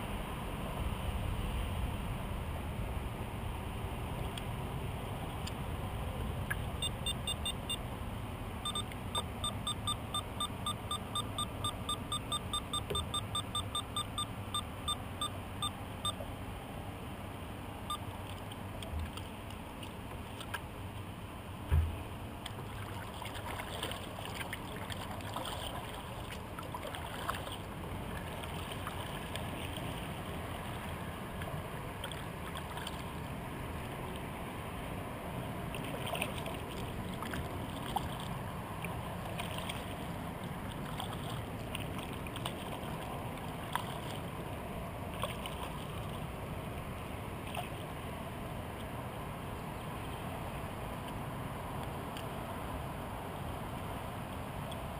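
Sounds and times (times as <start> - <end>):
water noise: 0.0 - 54.9
paddle splashes and drips: 18.1 - 21.1, 21.7 - 34.3, 35.6 - 48.0
low thump: 21.7 - 22.0.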